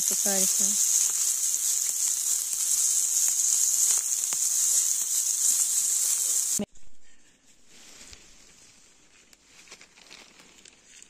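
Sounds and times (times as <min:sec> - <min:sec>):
meat sizzling on a grill: 0:00.0 - 0:06.7.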